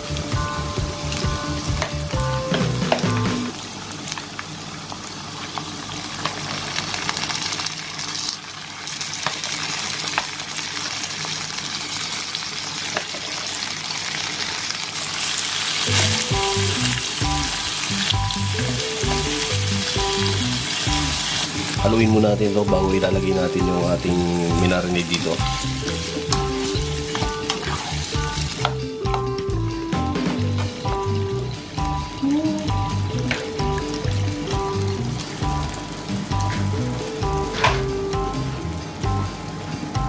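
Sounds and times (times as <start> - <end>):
background music: 0.0 - 3.6, 15.8 - 40.0
chicken sizzling in hot oil: 0.0 - 40.0.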